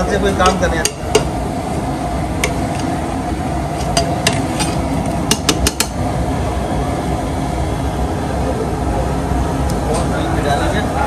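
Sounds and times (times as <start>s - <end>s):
kitchen background noise: 0.0s - 6.1s
utensils clinking against metal dishes: 0.3s - 1.3s, 3.8s - 6.0s.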